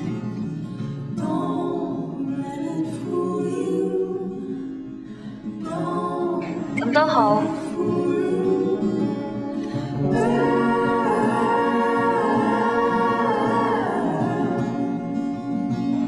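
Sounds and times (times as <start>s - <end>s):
song with singing over guitar: 0.0s - 16.0s.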